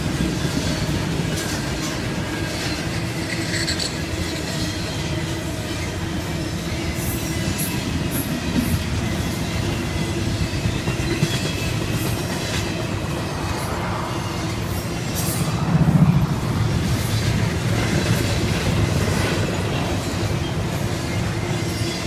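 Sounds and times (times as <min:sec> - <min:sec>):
clickety-clack over rail joints: 0:00.0 - 0:22.0
train wheels rumbling on rails: 0:00.0 - 0:22.0.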